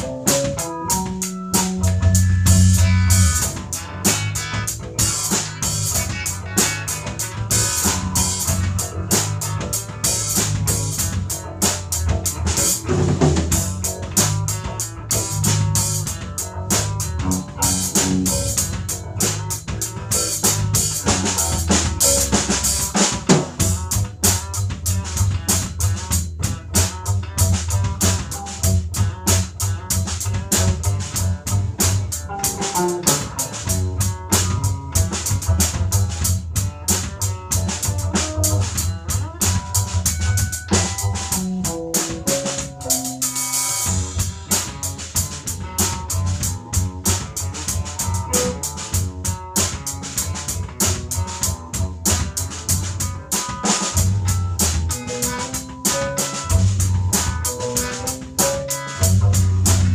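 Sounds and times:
deep bass line: 0.0 - 59.9
drum kit beat: 0.0 - 59.9.

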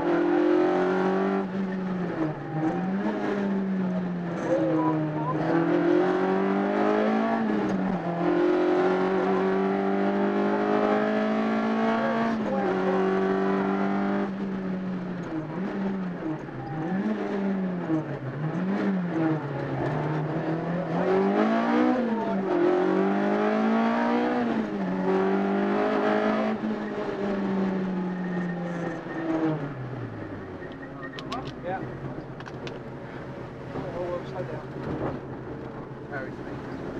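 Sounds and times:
rally car engine at high revs: 0.0 - 36.9.

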